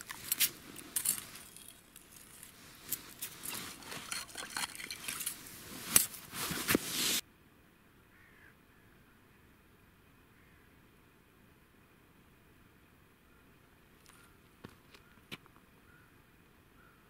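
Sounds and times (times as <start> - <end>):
gear handling clicks and scrapes: 0.0 - 7.2
faint bird call: 8.1 - 9.5, 10.3 - 10.7, 15.8 - 16.2, 16.8 - 17.0.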